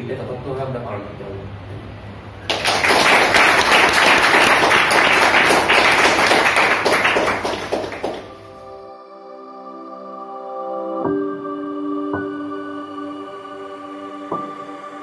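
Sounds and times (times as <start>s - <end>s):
audience clapping: 2.4s - 8.4s.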